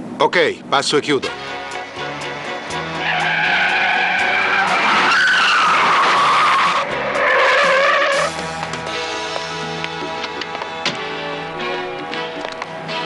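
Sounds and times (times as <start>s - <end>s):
car tyres screeching: 1.3s - 9.2s.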